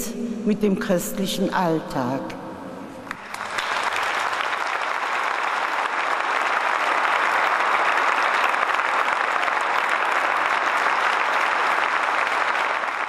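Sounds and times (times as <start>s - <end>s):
audience applauding: 3.1s - 13.0s.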